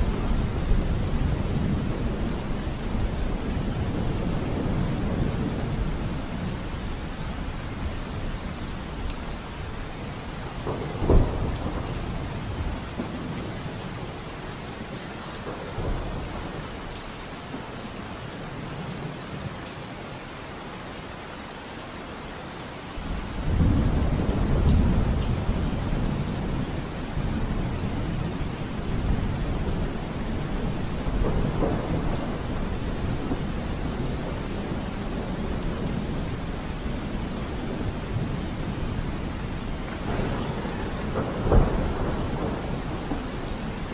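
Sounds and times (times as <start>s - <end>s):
low thunder rumble: 0.0s - 14.2s, 23.0s - 43.9s
rain falling steadily: 0.0s - 43.9s
thunder clap: 10.6s - 13.4s, 30.6s - 38.8s, 39.6s - 43.9s.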